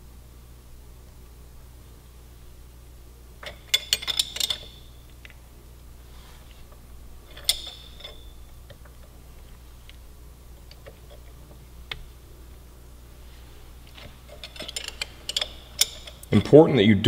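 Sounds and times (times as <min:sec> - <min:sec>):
metal clink with ring: 0:07.3 - 0:08.5.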